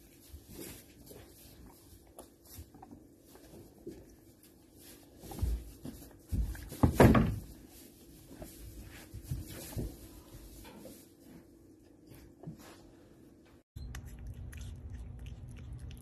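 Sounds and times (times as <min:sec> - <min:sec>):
low steady hum: 0:07.6 - 0:16.0.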